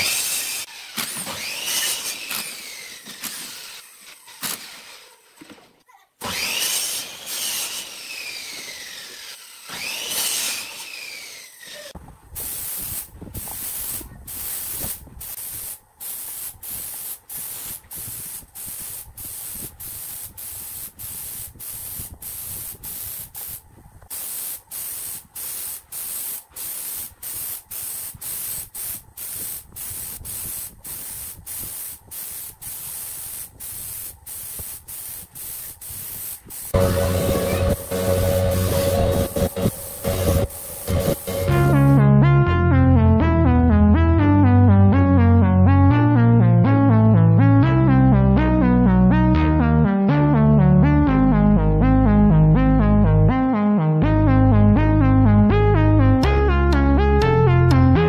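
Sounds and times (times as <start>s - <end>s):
power drill whining: 0.0s - 12.0s, 36.8s - 41.7s
short spray bursts: 11.6s - 42.0s.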